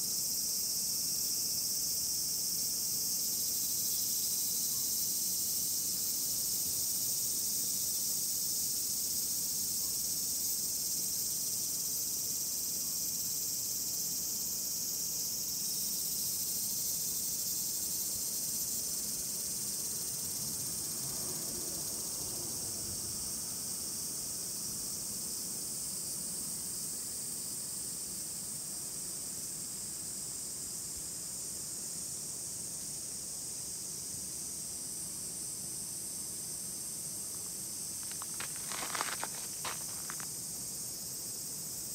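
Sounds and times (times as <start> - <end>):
insects singing: 33.6 - 41.9.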